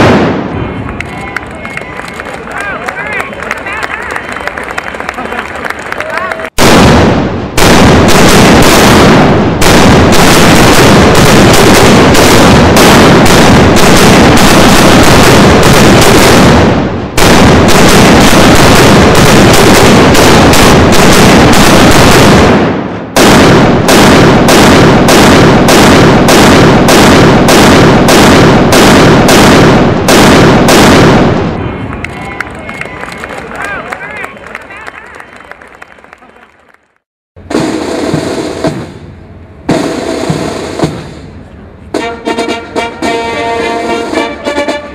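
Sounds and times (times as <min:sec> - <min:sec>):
cannon fire bangs: 0:00.0 - 0:00.8, 0:06.6 - 0:31.7.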